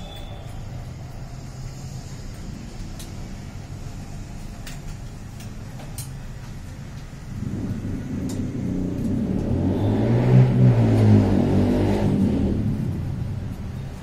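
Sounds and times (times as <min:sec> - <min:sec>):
steady low hum: 0:00.0 - 0:14.0
low rumble: 0:06.8 - 0:14.0.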